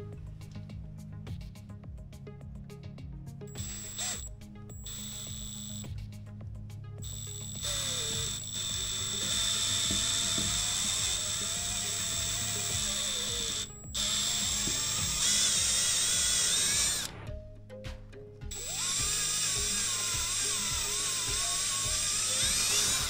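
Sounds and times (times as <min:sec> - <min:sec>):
cordless drill whining: 0:03.5 - 0:05.9, 0:07.0 - 0:17.3, 0:18.5 - 0:23.0.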